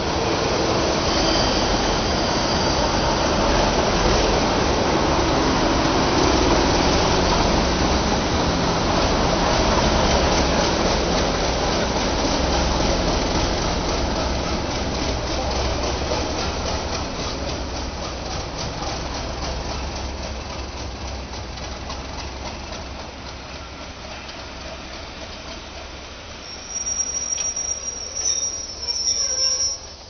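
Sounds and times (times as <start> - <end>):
high-pitched wheel squeal: 0.8 - 3.3, 26.4 - 30.0
train wheels clickety-clack: 3.0 - 30.0.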